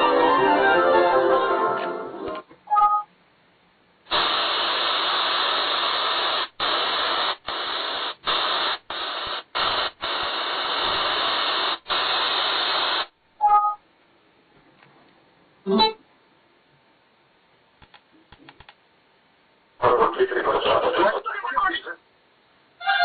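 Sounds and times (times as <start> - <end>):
speaker static hiss: 3.8 - 13.4, 14.0 - 23.0
two-note beep: 15.7 - 16.0.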